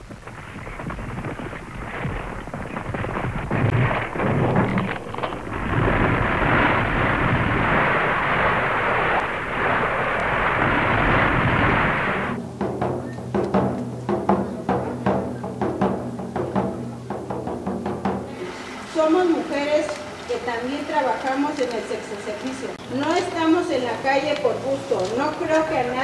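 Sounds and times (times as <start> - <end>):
building collapsing rumble: 0.0 - 12.4.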